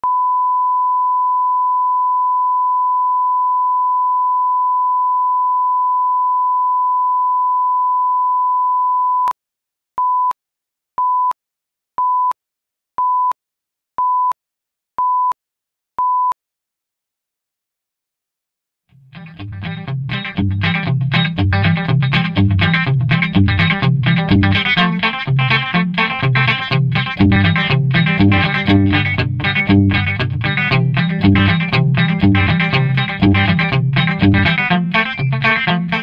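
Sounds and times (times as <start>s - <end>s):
short beeps: 0.0s - 9.4s, 10.0s - 10.4s, 11.0s - 11.4s, 12.0s - 12.4s, 13.0s - 13.4s, 14.0s - 14.4s, 15.0s - 15.4s, 16.0s - 16.4s.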